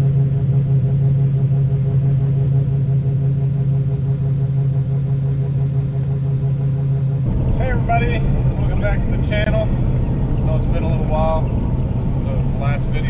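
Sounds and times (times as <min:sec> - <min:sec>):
auger machinery drone: 0:00.0 - 0:13.0
engine hum inside cab: 0:00.0 - 0:13.0.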